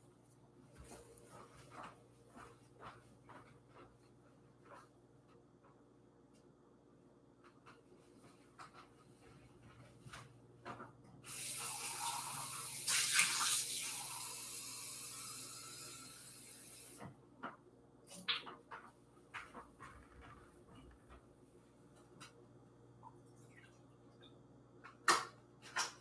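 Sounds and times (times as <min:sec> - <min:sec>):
water running from tap: 0:11.3 - 0:17.0.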